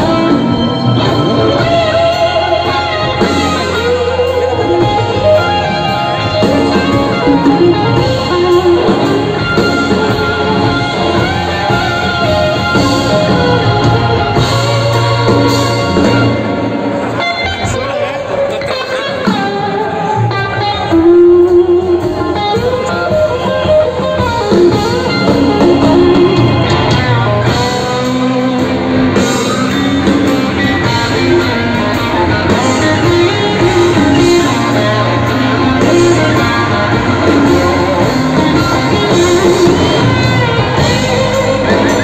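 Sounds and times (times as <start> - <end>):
drums: 0.0 - 42.0
electric guitar: 0.0 - 42.0
keyboard: 0.0 - 42.0.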